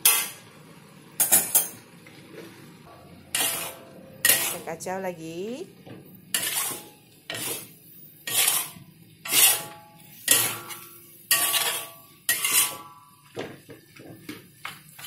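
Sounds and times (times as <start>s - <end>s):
metal spatula scraping wok: 0.0s - 0.5s, 3.2s - 4.9s, 6.2s - 13.2s.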